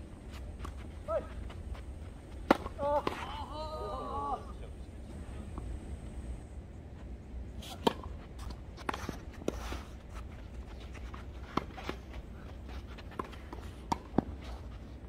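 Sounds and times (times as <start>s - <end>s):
racket hitting tennis ball: 2.4s - 3.3s, 7.6s - 9.9s, 13.1s - 14.4s.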